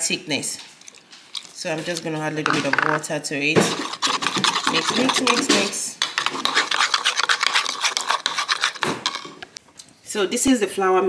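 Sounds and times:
metal spoon scraping a bowl: 3.6 - 9.4.

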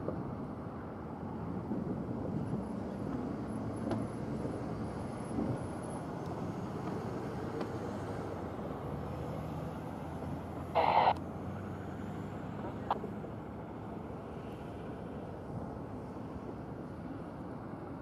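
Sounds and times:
locomotive engine rumble: 10.7 - 11.2.

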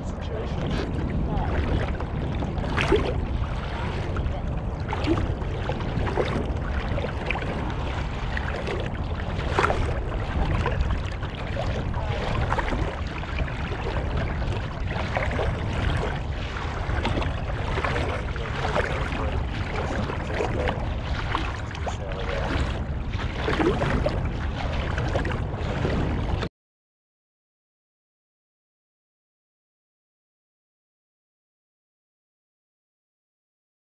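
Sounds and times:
wind rumble on microphone: 0.0 - 26.5
water slapping against a hull: 0.2 - 26.5.

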